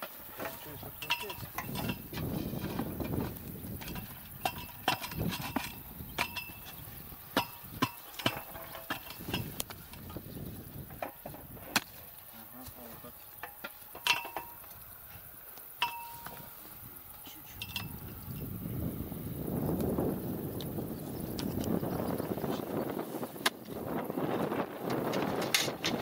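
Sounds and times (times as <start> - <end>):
metallic clinks and knocks: 13.4 - 14.7, 15.8 - 16.5, 17.5 - 18.5
steel bar ringing strikes: 15.8 - 16.4.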